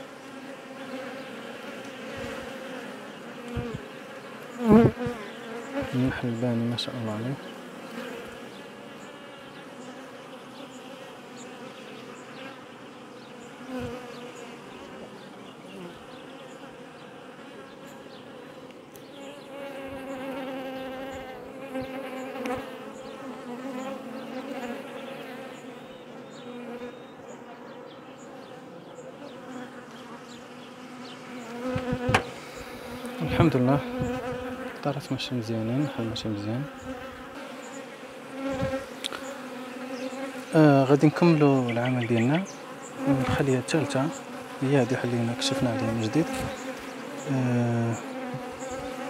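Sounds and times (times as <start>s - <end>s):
honeybees buzzing: 0.0s - 49.0s
hive tool knocking on wood: 31.7s - 32.4s, 48.2s - 48.8s.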